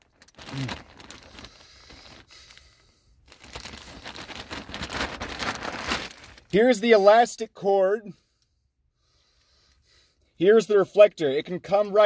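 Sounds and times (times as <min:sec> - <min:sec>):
plastic bag rustling: 0:00.0 - 0:06.5.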